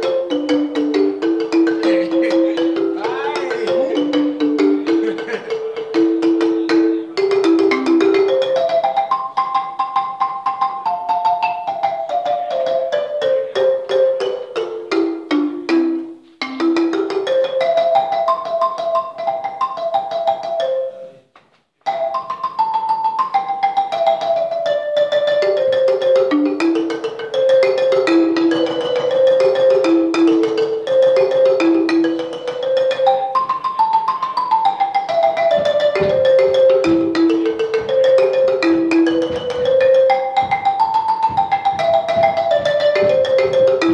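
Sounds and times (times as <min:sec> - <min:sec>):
marimba played with mallets: 0:00.0 - 0:21.2, 0:21.8 - 0:43.9.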